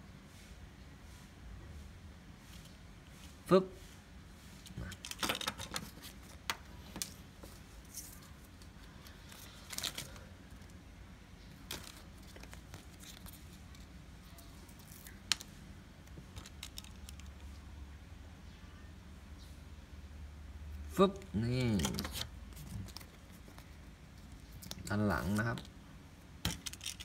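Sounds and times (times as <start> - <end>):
plastic toy car clicks: 26.4 - 27.0.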